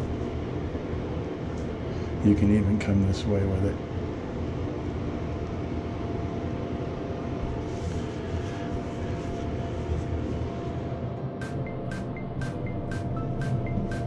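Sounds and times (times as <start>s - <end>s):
low mechanical hum: 0.0s - 14.0s
paintbrush swishing on wall: 7.4s - 10.7s.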